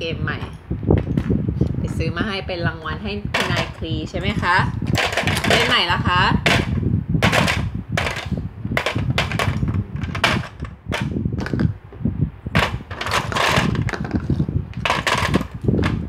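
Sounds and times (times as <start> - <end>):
plastic clatter: 3.3 - 11.7, 12.6 - 16.0.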